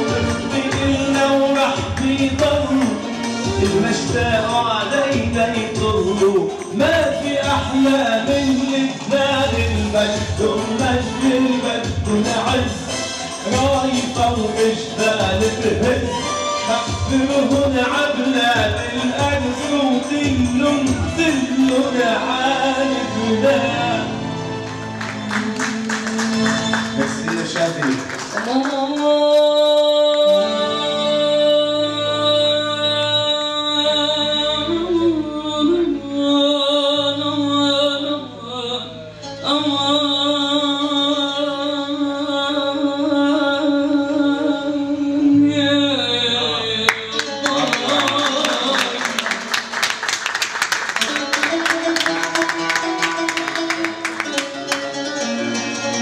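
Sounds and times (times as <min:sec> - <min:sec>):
man singing: 0:00.0 - 0:50.2, 0:50.9 - 0:56.0
woman singing: 0:28.4 - 0:38.8
fast guitar strumming: 0:46.9 - 0:56.0.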